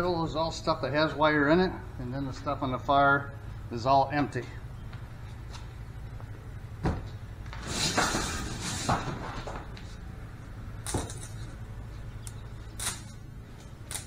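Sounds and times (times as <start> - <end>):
wire clattering on concrete: 10.8 - 11.6.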